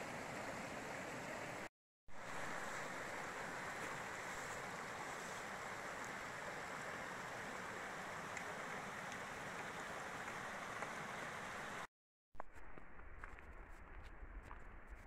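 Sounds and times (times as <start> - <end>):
stream rushing over rocks: 0.0 - 11.9.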